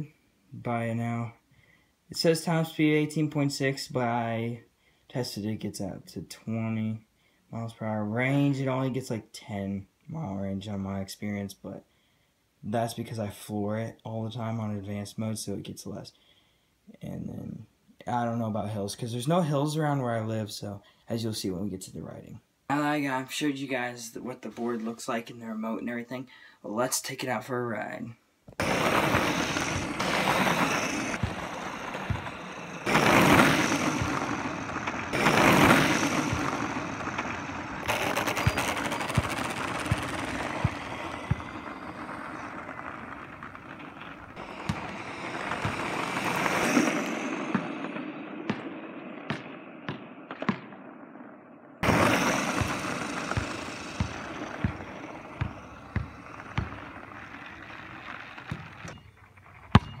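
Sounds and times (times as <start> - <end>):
skateboard wheels rolling on asphalt: 28.5 - 49.7, 51.8 - 60.0.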